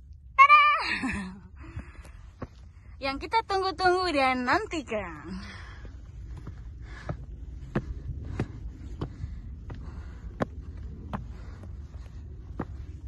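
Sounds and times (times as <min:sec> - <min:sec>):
steady low rumble: 0:00.0 - 0:13.0
footsteps on stone steps: 0:05.2 - 0:13.0.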